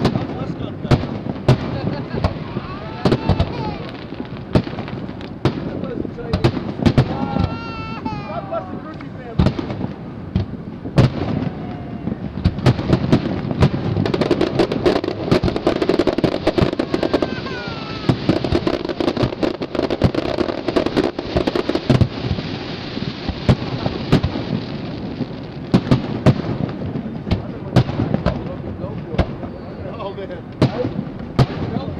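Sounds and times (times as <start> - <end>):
fireworks bangs and crackles: 0.0 - 31.9
continuous rumble: 23.2 - 31.9.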